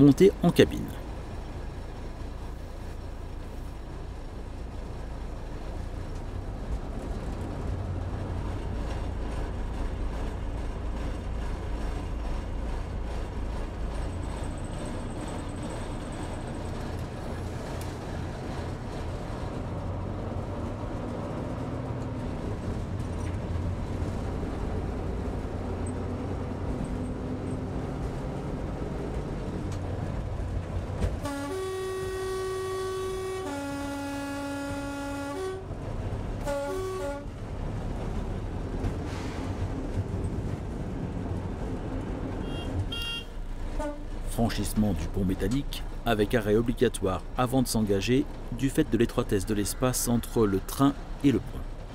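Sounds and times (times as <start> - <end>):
railcar engine drone: 0.0 - 51.9
two-tone train horn: 31.2 - 35.7, 36.4 - 37.3, 42.4 - 44.2.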